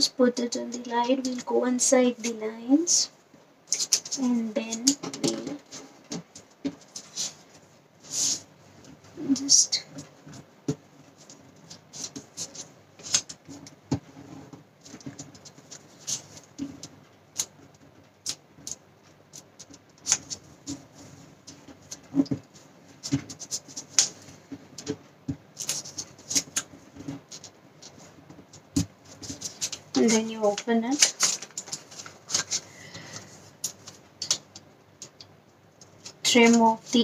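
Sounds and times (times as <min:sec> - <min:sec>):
paper being folded and creased: 0:03.7 - 0:08.4, 0:11.1 - 0:22.4, 0:25.6 - 0:35.2.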